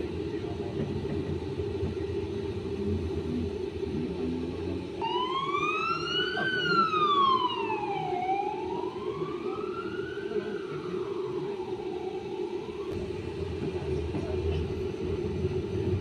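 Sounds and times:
traffic rumble: 0:00.0 - 0:16.0
ambulance siren wailing: 0:05.0 - 0:13.0.

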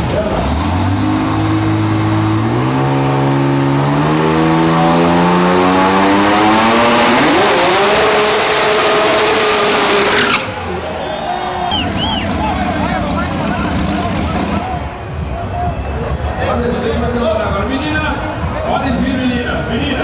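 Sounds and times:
dragster engine revving: 0:00.0 - 0:14.9.

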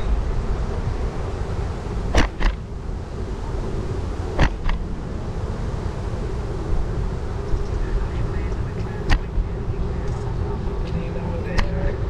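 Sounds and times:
road rumble: 0:00.0 - 0:12.0
wind: 0:00.0 - 0:12.0
sharp knocks: 0:02.1 - 0:02.6, 0:04.4 - 0:04.8.

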